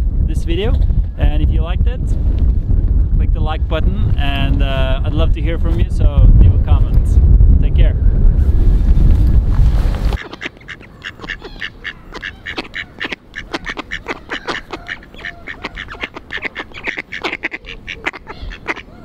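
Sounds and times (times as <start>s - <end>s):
wind buffeting microphone: 0.0s - 19.0s
ducks quacking: 10.2s - 19.0s.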